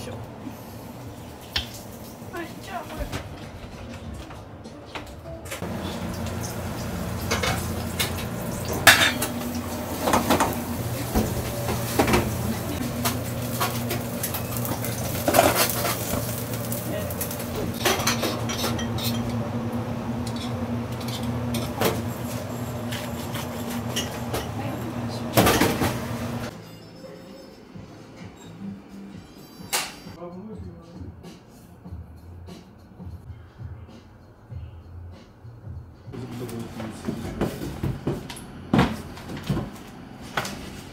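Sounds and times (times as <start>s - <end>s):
frying pans clanking: 5.5s - 19.6s, 20.2s - 26.5s.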